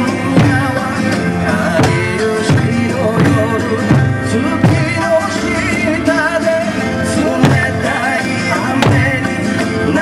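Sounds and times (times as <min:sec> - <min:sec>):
hand drums and barrel drum: 0:00.0 - 0:10.0
person singing folk song: 0:00.0 - 0:10.0.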